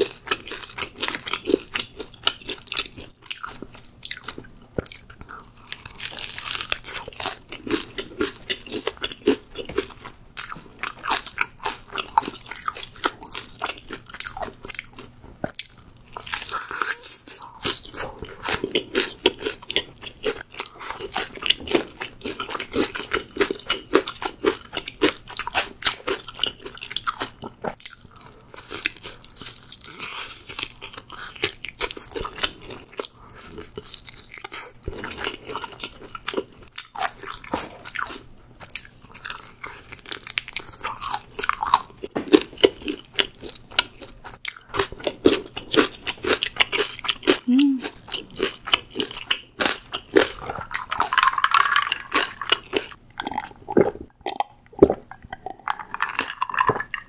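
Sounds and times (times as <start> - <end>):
crunching fried chicken: 0.0 - 57.0.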